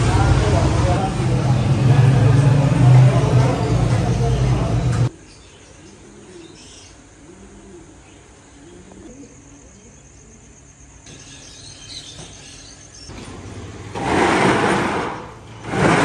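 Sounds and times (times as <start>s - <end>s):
night street background: 0.0s - 16.0s
metal shop shutter rattling open: 13.1s - 16.0s.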